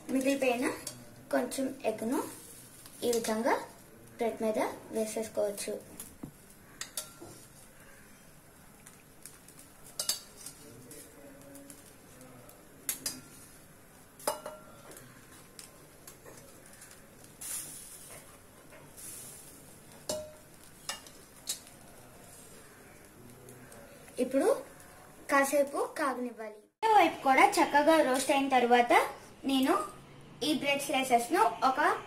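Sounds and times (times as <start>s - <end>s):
egg sizzling on griddle: 0.0s - 26.0s
spoon clinking and scraping bowl: 6.8s - 7.5s, 9.9s - 10.6s.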